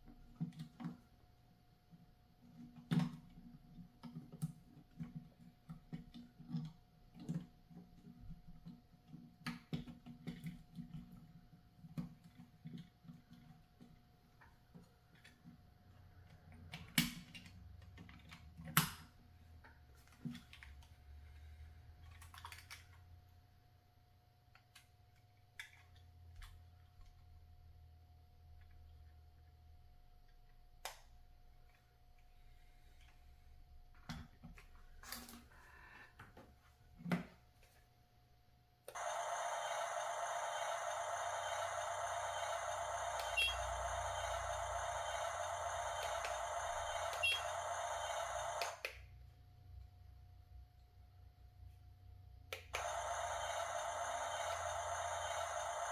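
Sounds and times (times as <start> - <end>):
steady whirring hiss: 39.0 - 48.8, 52.8 - 55.9.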